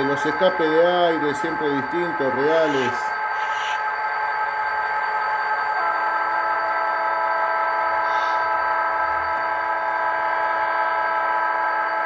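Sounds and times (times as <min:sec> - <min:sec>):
multi-tone air horn chord: 0:05.7 - 0:06.6.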